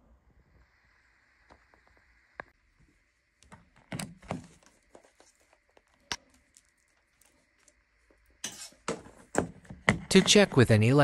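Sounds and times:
faint ticks and rustles: 0:04.4 - 0:08.4.

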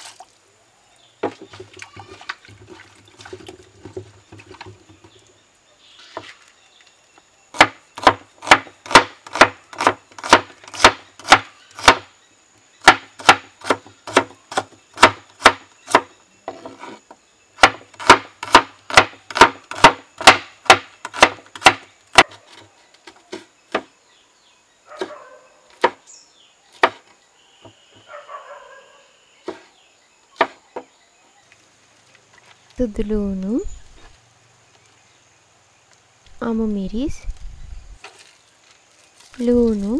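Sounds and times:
knife chopping on wooden board: 0:07.6 - 0:12.0, 0:12.8 - 0:16.8, 0:17.6 - 0:22.4, 0:25.8 - 0:26.0, 0:26.8 - 0:27.0, 0:30.4 - 0:30.9.

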